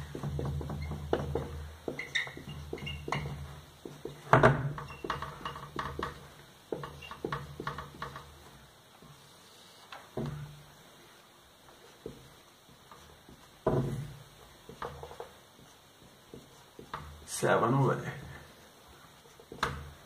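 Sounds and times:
marker squeaking on whiteboard: 0.1 - 8.4, 14.7 - 17.0.

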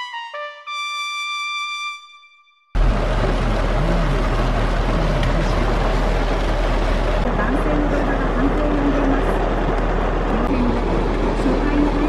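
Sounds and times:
brass jingle: 0.0 - 2.7
heavy rain on a car: 2.8 - 12.0.

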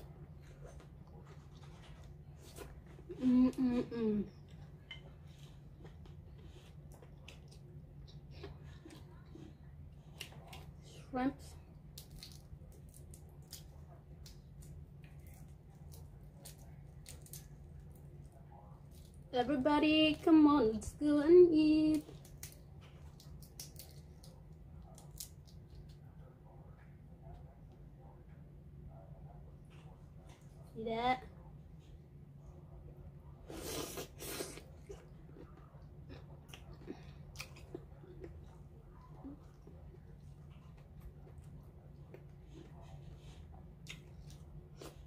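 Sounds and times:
low steady hum: 0.0 - 45.0.

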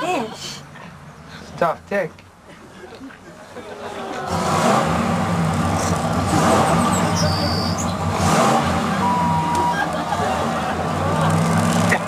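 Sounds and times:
truck engine revving: 4.3 - 12.0.

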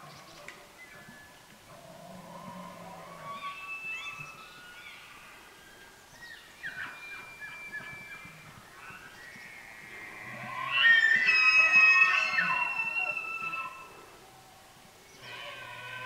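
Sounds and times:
elk bugling: 6.7 - 14.3.

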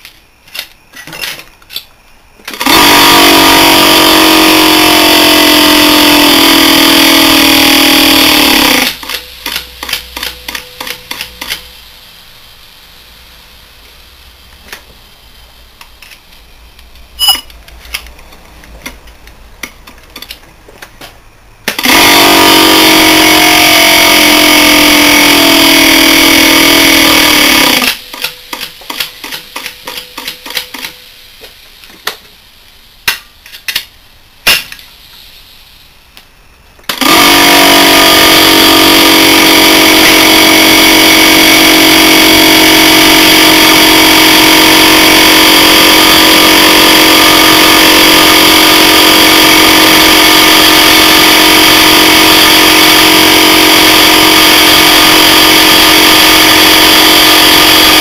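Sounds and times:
compressor running loudly: 1.4 - 16.8, 20.4 - 29.3, 36.8 - 58.0.

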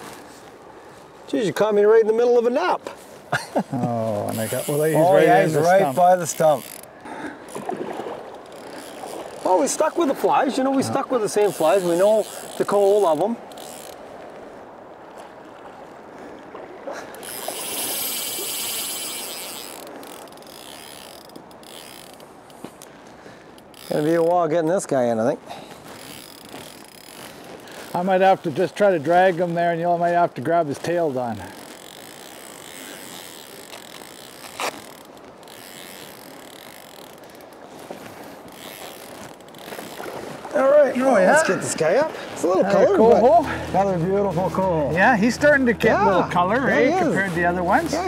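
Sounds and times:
river water rushing: 4.1 - 48.0
fly reel drag buzzing: 4.2 - 14.3, 17.0 - 24.5, 25.8 - 29.6, 31.1 - 41.8, 42.6 - 48.0.

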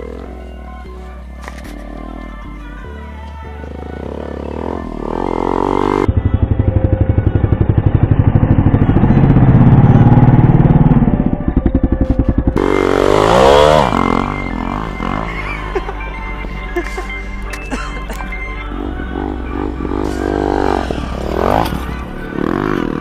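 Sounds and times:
dirt bike engine revving: 3.9 - 6.3, 7.3 - 15.6, 18.7 - 23.0.

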